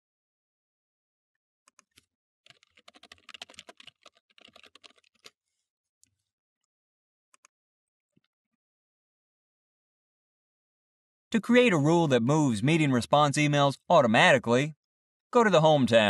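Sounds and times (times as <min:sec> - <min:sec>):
computer keyboard typing: 0:01.7 - 0:05.4.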